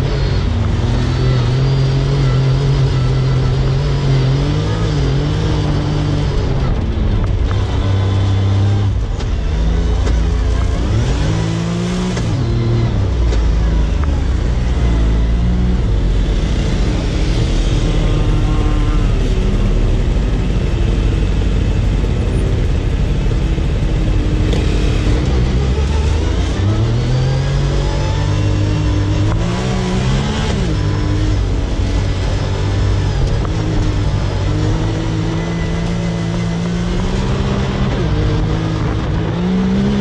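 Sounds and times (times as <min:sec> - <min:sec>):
utility vehicle engine revving: 0:00.0 - 0:40.0.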